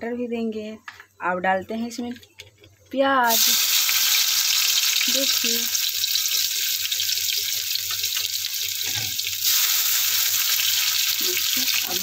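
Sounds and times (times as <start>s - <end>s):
onion sizzling in oil: 3.2s - 12.0s.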